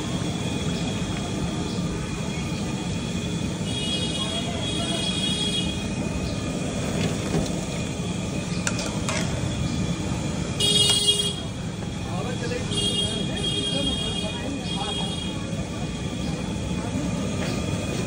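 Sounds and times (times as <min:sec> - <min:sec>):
street traffic: 0:00.0 - 0:18.0
car horn toot: 0:10.6 - 0:11.5.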